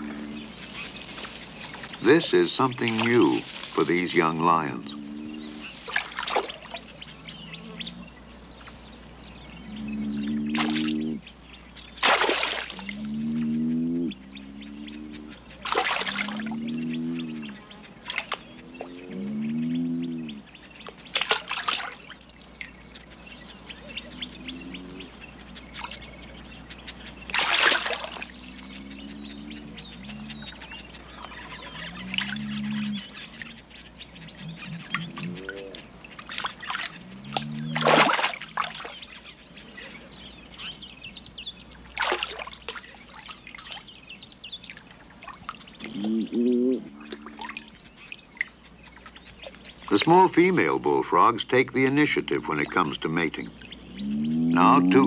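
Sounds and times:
shallow water splashing: 0:00.0 - 0:07.1, 0:12.0 - 0:13.2, 0:15.5 - 0:16.8, 0:17.9 - 0:18.6, 0:20.8 - 0:24.5, 0:27.0 - 0:33.8, 0:34.6 - 0:39.3, 0:41.8 - 0:46.1, 0:46.8 - 0:53.8
bullfrog whooping calls: 0:04.5 - 0:05.8, 0:09.6 - 0:11.2, 0:12.7 - 0:17.9, 0:18.5 - 0:20.5, 0:23.8 - 0:26.1, 0:28.1 - 0:35.9, 0:36.6 - 0:39.0, 0:45.8 - 0:47.8, 0:53.8 - 0:55.0.

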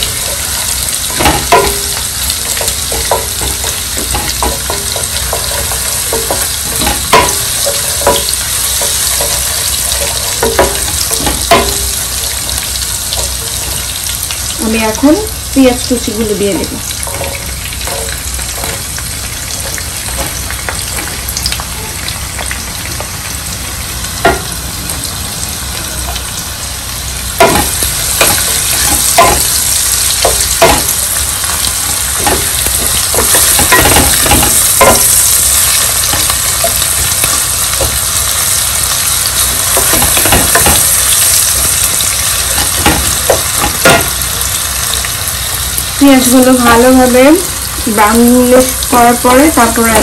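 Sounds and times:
spatula scraping a pan: 0:00.0 - 0:14.4, 0:16.0 - 0:22.0
oil sizzling in a pan: 0:00.0 - 0:50.0.

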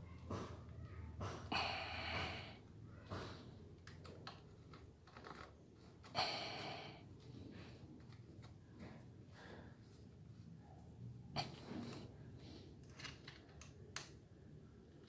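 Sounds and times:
noisy breaths: 0:01.2 - 0:03.7, 0:06.1 - 0:08.0, 0:08.7 - 0:10.6.

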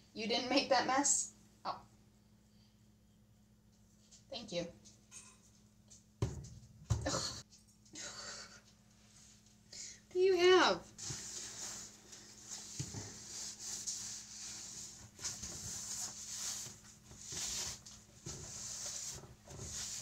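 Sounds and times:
cloth wiping stovetop: 0:10.9 - 0:20.0.

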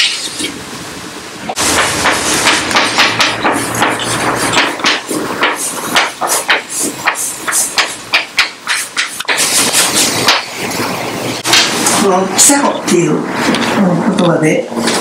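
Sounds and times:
chalk tapping on blackboard: 0:01.7 - 0:10.5.

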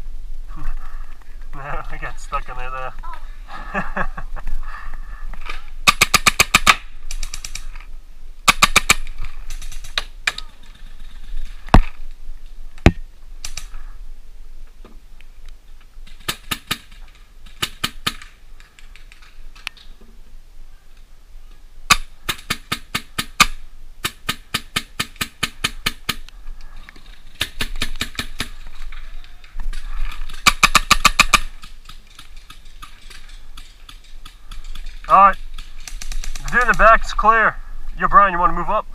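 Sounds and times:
paintball markers firing: 0:30.2 - 0:36.9.

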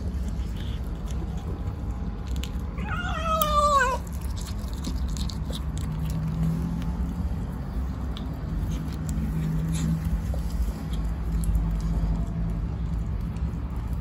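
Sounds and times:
kitten chewing meat: 0:00.0 - 0:14.0
kitten meowing: 0:02.8 - 0:04.2.

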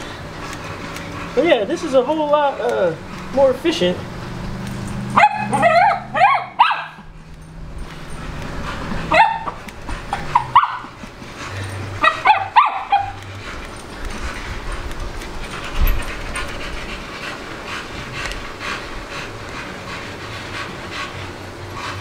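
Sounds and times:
dog yipping and whining: 0:05.0 - 0:07.1, 0:09.0 - 0:11.0, 0:12.0 - 0:13.3.

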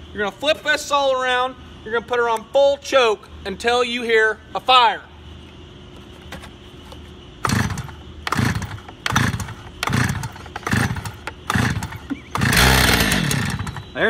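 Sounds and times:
recoil starter cord yanked: 0:07.4 - 0:13.8
saw engine turning over: 0:07.4 - 0:14.0.

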